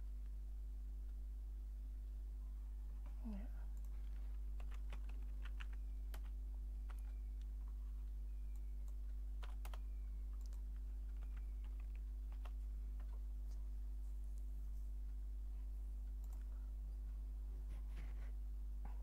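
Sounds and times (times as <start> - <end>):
steady low hum: 0.0 - 19.0
keyboard typing: 3.7 - 13.3, 16.0 - 16.7.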